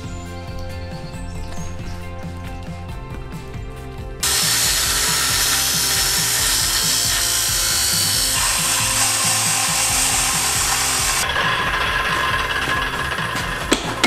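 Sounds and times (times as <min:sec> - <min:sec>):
background music: 0:00.0 - 0:14.0
angle grinder grinding steel: 0:04.2 - 0:14.0.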